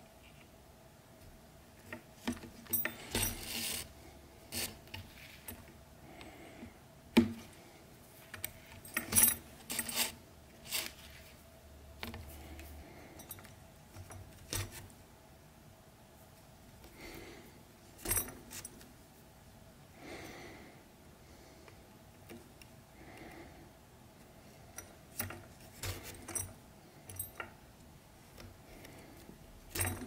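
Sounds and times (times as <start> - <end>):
metal buckle clinking: 2.6 - 3.8, 8.4 - 10.1, 18.0 - 18.8, 24.8 - 27.6, 29.7 - 30.0.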